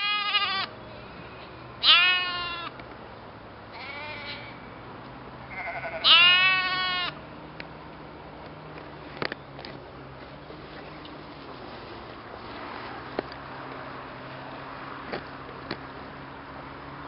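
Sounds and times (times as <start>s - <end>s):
sheep bleating: 0.0s - 0.7s, 1.8s - 2.7s, 3.7s - 4.6s, 5.5s - 7.2s.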